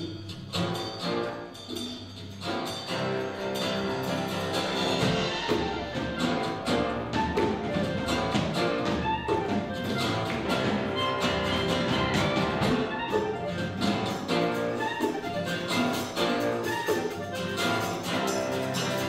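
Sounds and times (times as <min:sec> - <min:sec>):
live band playing instrumental: 0:00.0 - 0:19.0.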